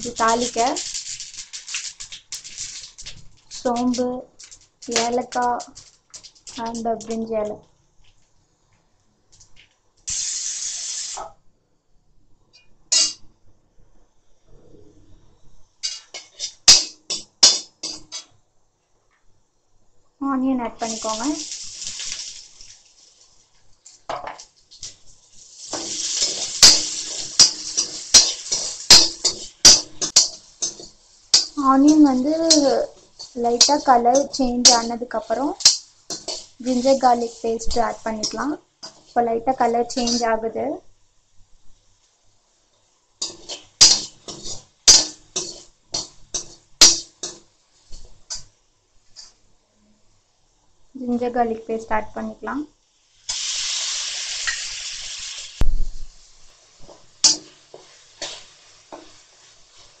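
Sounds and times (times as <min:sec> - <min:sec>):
onion sizzling in oil: 0:00.0 - 0:08.2, 0:09.4 - 0:11.4, 0:15.7 - 0:18.4, 0:20.2 - 1:00.0
metal spoon clinking on pan: 0:15.8 - 0:18.3, 0:25.7 - 0:34.9, 0:35.6 - 0:36.8, 0:40.0 - 0:40.2, 0:43.2 - 0:47.4.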